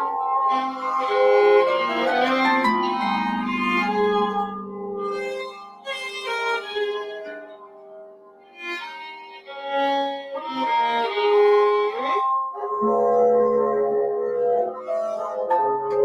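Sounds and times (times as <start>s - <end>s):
bowed violin: 0.0s - 16.0s
long held low note: 9.7s - 16.0s.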